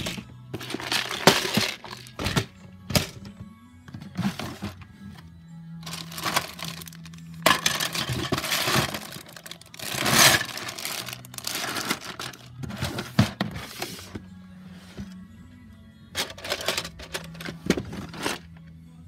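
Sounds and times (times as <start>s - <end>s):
plastic bags crinkling: 5.8s - 12.6s.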